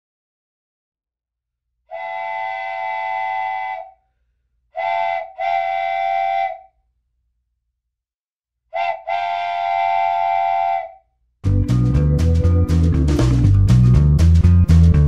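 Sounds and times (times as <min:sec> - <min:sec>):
train whistle blasts: 0:01.9 - 0:04.0, 0:04.8 - 0:06.7, 0:08.7 - 0:11.0.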